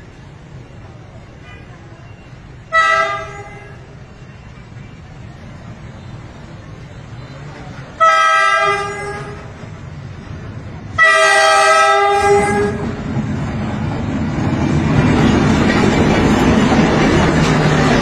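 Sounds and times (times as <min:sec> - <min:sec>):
train engine and wheels rumbling: 0:00.0 - 0:18.0
locomotive horn blasts: 0:02.7 - 0:03.9, 0:08.0 - 0:09.5, 0:11.0 - 0:13.0.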